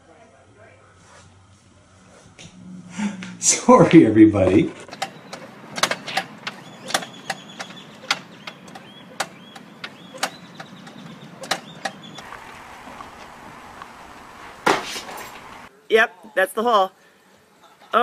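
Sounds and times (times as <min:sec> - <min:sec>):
wooden fence knocking and creaking: 0:04.8 - 0:12.2
faint steady hiss: 0:12.2 - 0:18.0.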